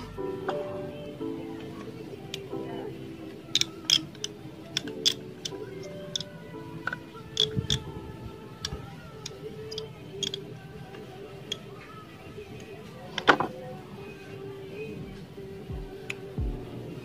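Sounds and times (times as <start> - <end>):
metal rod clicking on metal: 3.5 - 6.3, 8.6 - 10.4.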